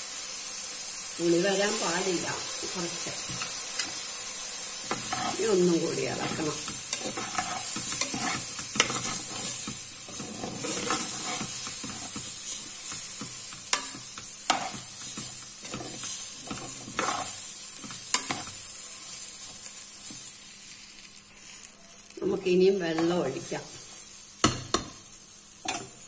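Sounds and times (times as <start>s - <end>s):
rice and vegetables sizzling: 0.0s - 26.0s
metal spoon scraping pot: 6.1s - 12.2s, 13.7s - 17.4s.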